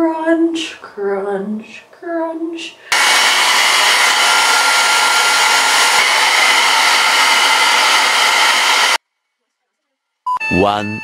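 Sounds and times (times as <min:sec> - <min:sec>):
hair dryer blowing: 0:02.9 - 0:09.0.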